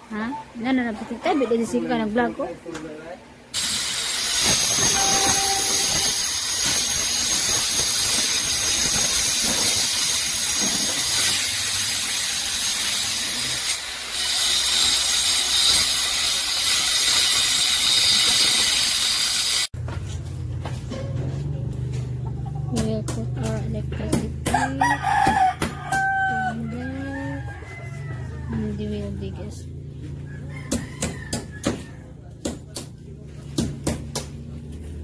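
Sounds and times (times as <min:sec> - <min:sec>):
angle grinder cutting masonry: 0:03.6 - 0:19.7.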